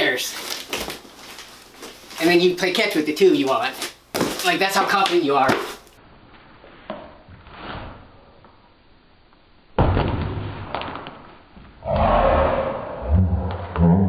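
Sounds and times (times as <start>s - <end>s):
packaging rustling: 0.2s - 2.4s.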